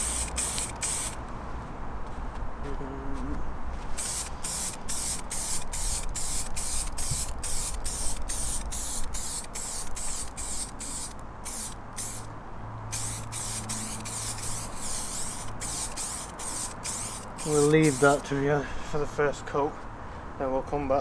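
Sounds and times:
spray can hissing: 0:00.0 - 0:01.2, 0:04.0 - 0:12.3, 0:12.9 - 0:18.3.

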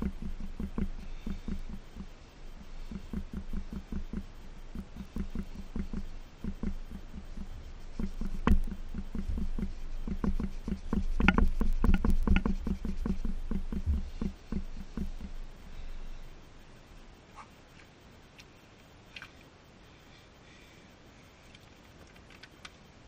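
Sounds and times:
cloth scrubbing metal pipe: 0:00.0 - 0:16.3.

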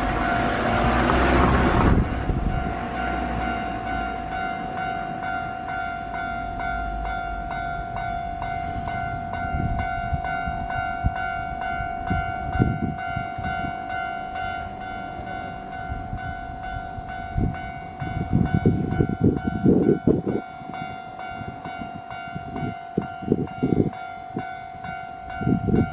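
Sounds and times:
low thumps and rumbles: 0:00.8 - 0:03.6
level crossing bell ringing: 0:03.0 - 0:25.9.

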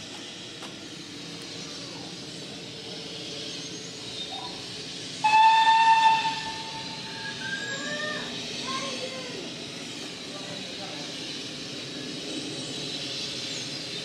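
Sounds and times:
steam hissing: 0:00.0 - 0:14.0
steam whistle blast: 0:05.2 - 0:07.7.

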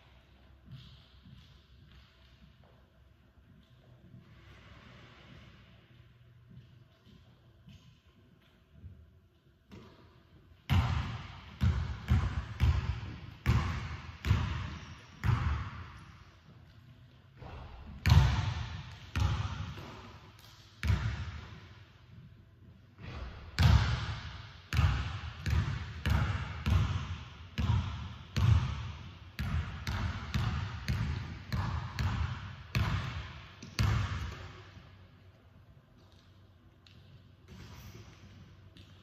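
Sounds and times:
basketball bouncing on hardwood: 0:10.7 - 0:16.0, 0:18.0 - 0:21.6, 0:23.6 - 0:34.5.

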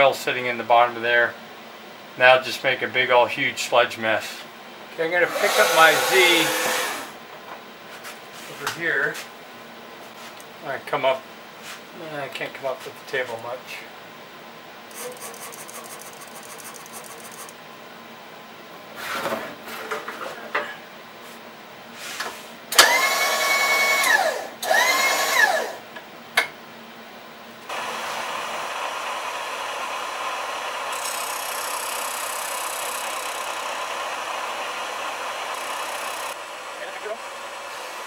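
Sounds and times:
milling machine spindle whine: 0:05.2 - 0:07.2, 0:22.8 - 0:25.8, 0:27.7 - 0:38.0.

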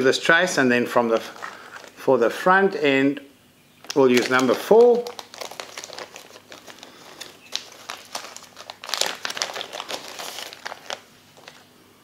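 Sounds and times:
plastic packet crinkling: 0:01.0 - 0:02.0, 0:03.8 - 0:11.8.

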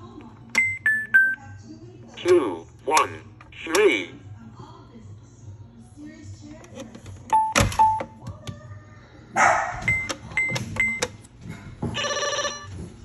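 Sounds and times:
toy phone ringing tone: 0:12.0 - 0:12.7.

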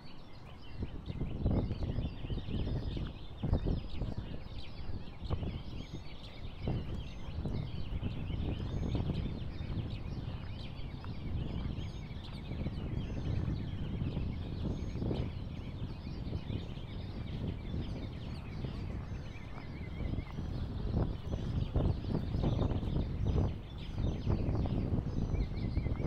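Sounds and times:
flock of birds calling: 0:00.0 - 0:26.0
wind rushing: 0:06.6 - 0:26.0.

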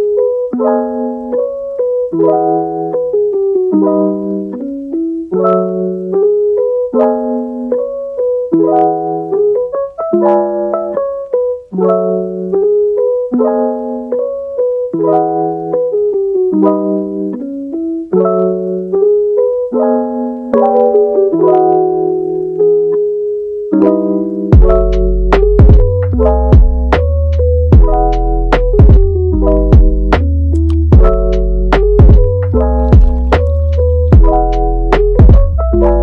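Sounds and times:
piano chords: 0:00.0 - 0:36.0.

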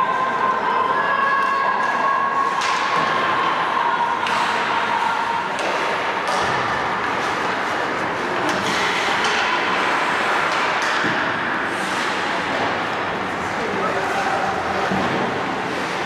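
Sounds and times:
hockey game noise: 0:00.0 - 0:16.0
sharp knocks of sticks and puck: 0:05.5 - 0:07.5, 0:08.4 - 0:12.7.

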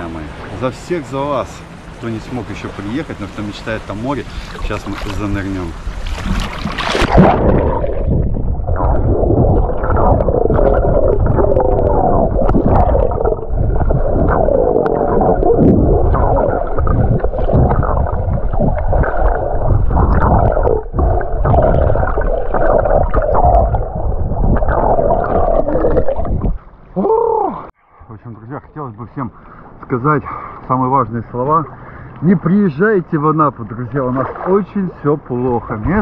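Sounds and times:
muffled underwater churning bubbling: 0:00.0 - 0:27.7, 0:28.4 - 0:36.0
camera splashing into water: 0:06.0 - 0:13.4.

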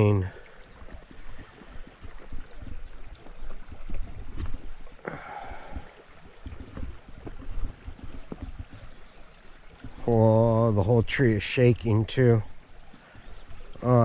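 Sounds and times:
wind on microphone: 0:00.0 - 0:10.1
river rippling over stones: 0:00.0 - 0:14.0.

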